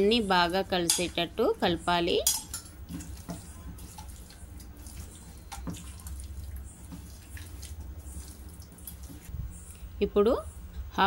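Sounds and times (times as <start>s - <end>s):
steady low hum: 0.0s - 11.0s
wet squelching of raw chicken: 2.9s - 9.3s.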